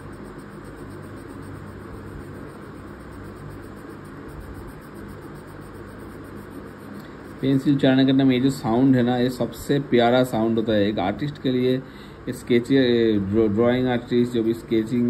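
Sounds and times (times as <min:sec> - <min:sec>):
pencil scratching on paper: 0:00.0 - 0:07.8.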